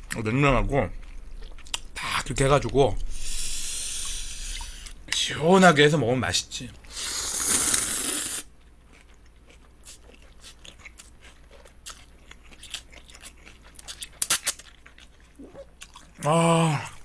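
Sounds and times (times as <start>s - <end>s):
close-up wet chewing: 1.0s - 2.0s, 8.8s - 16.2s
loud slurp of noodles: 6.9s - 8.5s.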